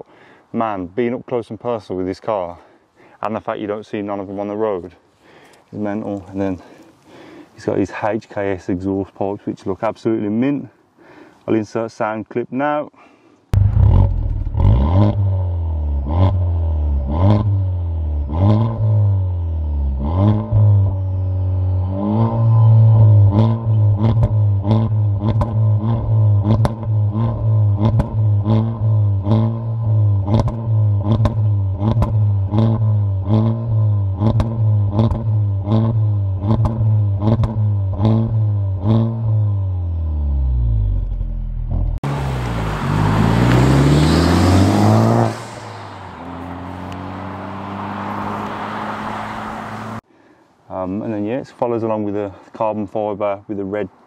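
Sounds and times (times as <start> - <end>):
car engine revving: 13.6 - 50.0
car driving past: 40.4 - 50.0.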